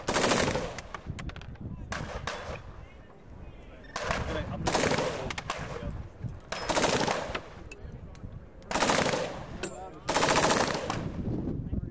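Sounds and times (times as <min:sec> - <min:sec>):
carbine firing full-auto bursts: 0:00.0 - 0:00.9, 0:06.6 - 0:07.4, 0:08.7 - 0:09.5, 0:10.1 - 0:11.0.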